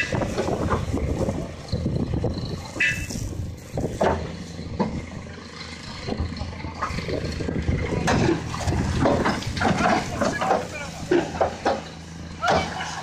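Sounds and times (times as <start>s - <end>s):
diesel excavator engine running: 0.0s - 13.0s
sharp knocks: 8.0s - 11.9s.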